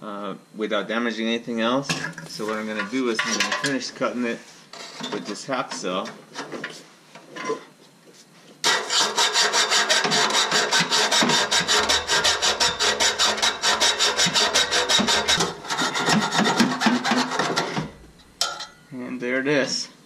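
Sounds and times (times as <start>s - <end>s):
hacksaw sawing metal pipe: 8.6s - 17.9s.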